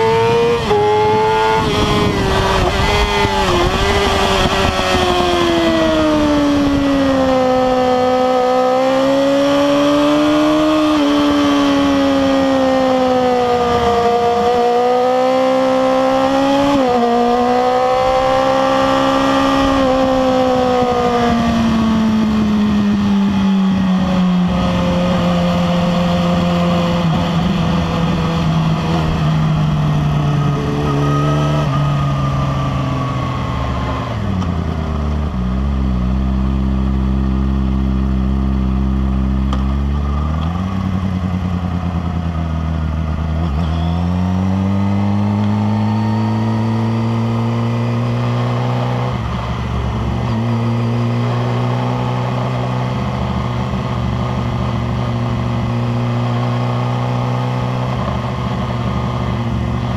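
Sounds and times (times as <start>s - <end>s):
wind rushing across microphone: 0.0s - 8.0s, 18.0s - 34.7s
motorcycle engine revving: 0.0s - 59.9s.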